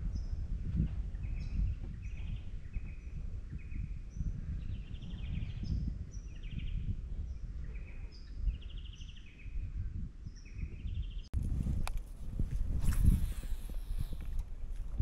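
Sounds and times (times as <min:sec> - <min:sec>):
birds chirping and trilling: 0:01.1 - 0:09.7
low uneven rumble: 0:11.4 - 0:15.0.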